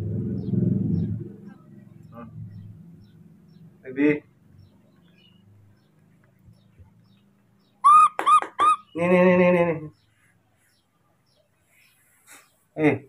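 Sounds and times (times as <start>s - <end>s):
infant monkey squeaky cries: 7.8s - 9.0s.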